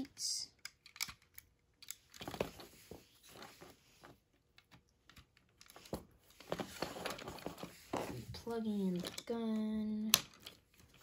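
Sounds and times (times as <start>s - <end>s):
plastic toy parts clicking: 0.5s - 2.3s, 8.9s - 11.0s.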